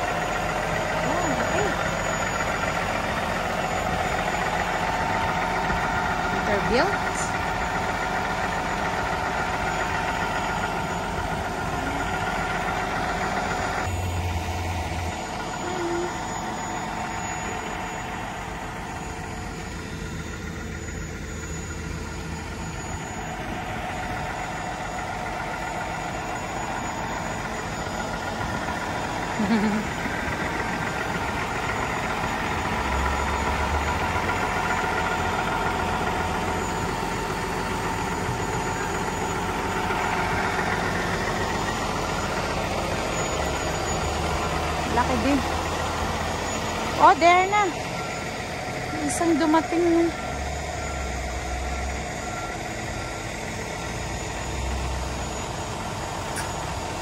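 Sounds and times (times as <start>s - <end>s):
diesel engine droning: 0.0s - 57.0s.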